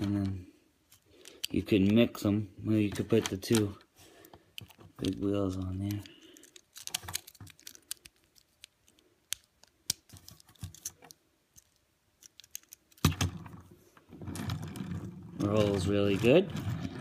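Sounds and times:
toy car wheels rolling on wood: 12.6 - 17.0.

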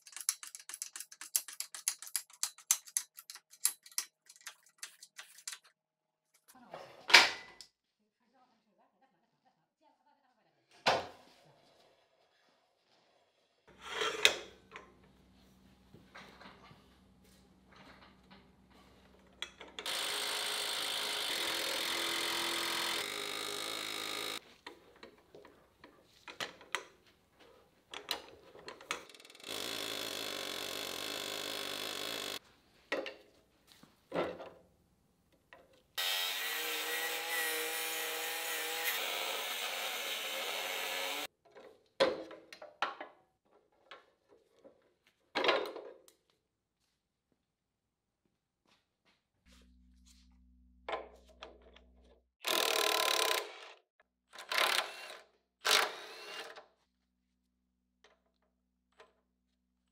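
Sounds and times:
power tool running: 19.8 - 24.4, 29.4 - 32.4, 36.0 - 41.3.

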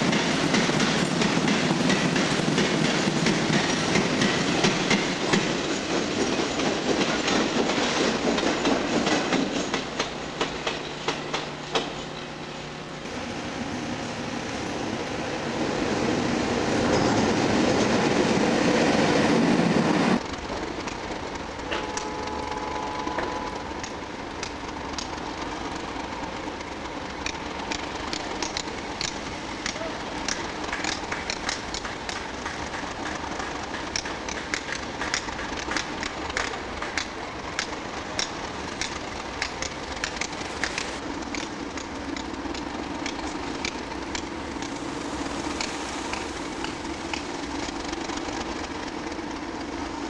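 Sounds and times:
diesel locomotive engine drone: 0.0 - 50.0
sharp ticks: 26.5 - 44.3.

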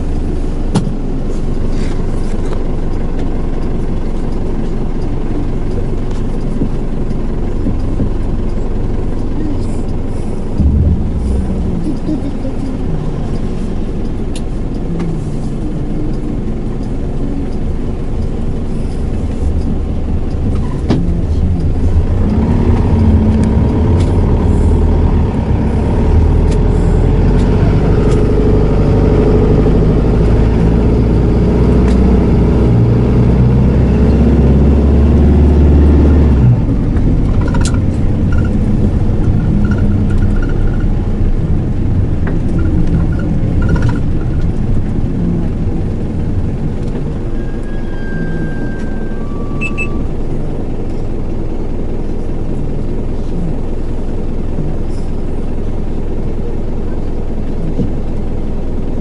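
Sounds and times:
diesel engine in moving minibus: 0.0 - 59.0
faint high beeps: 47.4 - 50.1.

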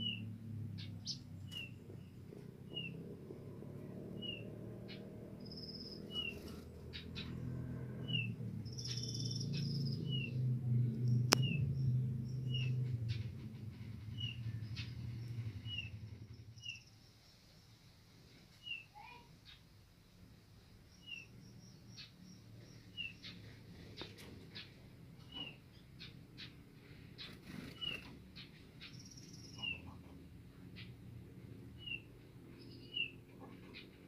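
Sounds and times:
low background rumble: 0.0 - 18.2.

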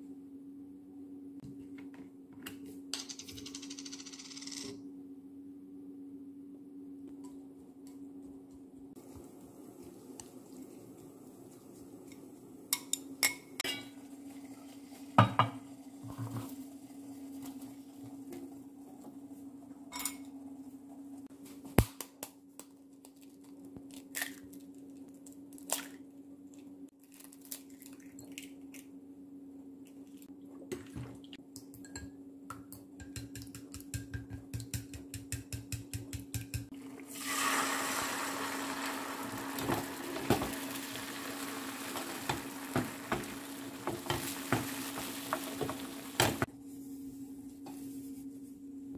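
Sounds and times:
egg sizzling in frying pan: 13.8 - 18.0, 37.0 - 46.5.

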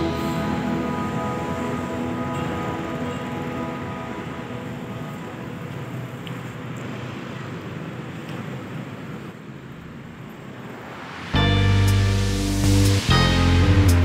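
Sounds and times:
loud music: 0.0 - 4.9, 11.2 - 14.0
motorcycles passing: 0.0 - 9.4
cars passing: 0.0 - 14.0.

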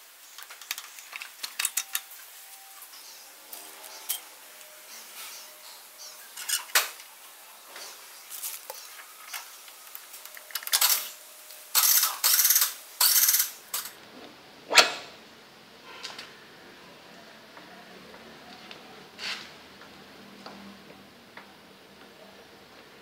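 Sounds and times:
metal clinks and scrapes: 3.5 - 6.8.

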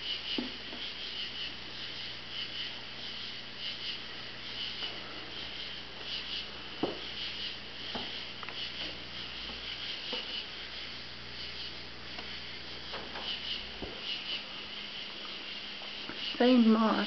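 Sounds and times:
insects chirping in pulsing trill: 0.0 - 17.0.

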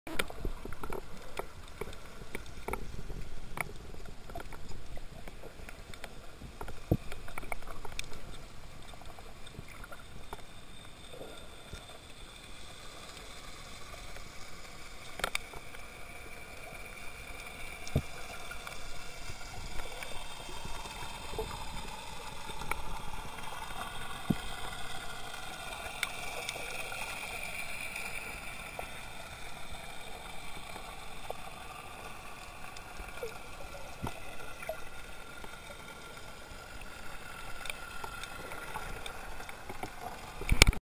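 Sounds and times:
muffled underwater water noise: 0.1 - 40.8.

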